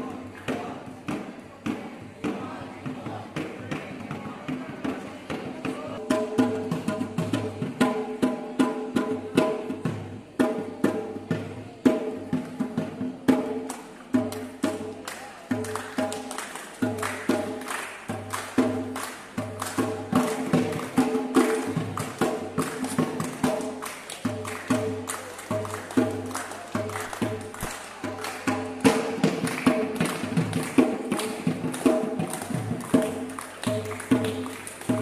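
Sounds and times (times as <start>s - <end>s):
dhol drum rhythm: 0.0s - 35.0s
hand claps: 13.6s - 35.0s.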